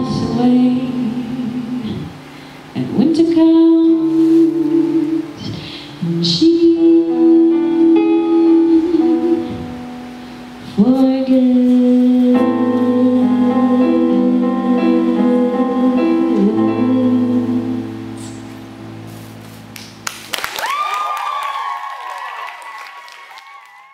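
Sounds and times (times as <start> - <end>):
woman singing long notes: 0.0 - 10.0, 10.6 - 18.4.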